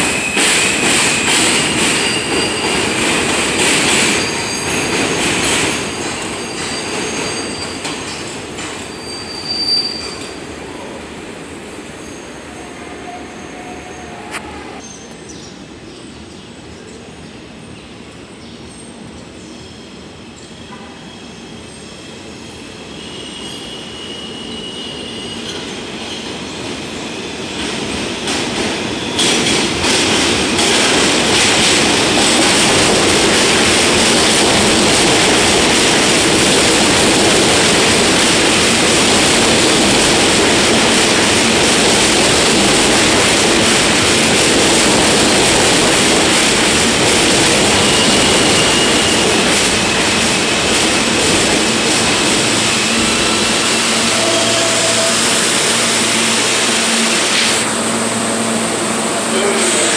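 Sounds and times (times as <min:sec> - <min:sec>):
subway train pulling in: 0:00.0 - 0:59.9
high brake squeal: 0:02.0 - 0:02.8, 0:04.1 - 0:04.8, 0:06.0 - 0:08.2, 0:08.8 - 0:10.4, 0:22.8 - 0:26.3, 0:47.8 - 0:49.5.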